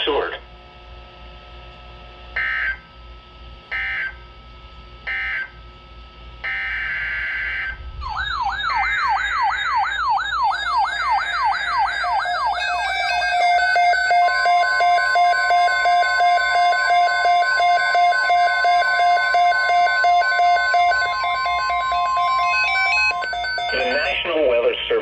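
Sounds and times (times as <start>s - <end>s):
steady electronic tones: 6.5s - 25.0s
warbling electronic alert tone: 7.5s - 24.7s
digital data screech: 10.6s - 25.0s.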